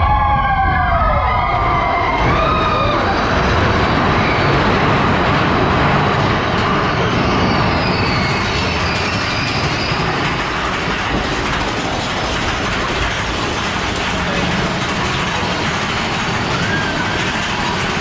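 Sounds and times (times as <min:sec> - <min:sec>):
roller coaster rumble and rattle: 0:00.0 - 0:18.0
high wheel squeal: 0:02.2 - 0:10.9, 0:16.2 - 0:18.0.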